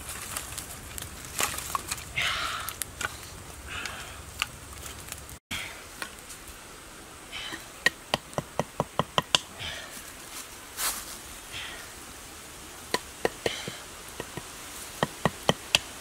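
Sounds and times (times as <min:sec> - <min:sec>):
bamboo tube knocking on stick: 0:07.8 - 0:09.5.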